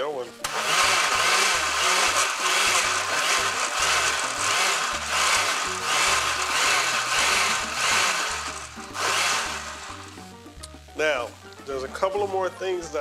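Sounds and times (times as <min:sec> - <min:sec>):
blender pulsing: 0:00.4 - 0:10.3.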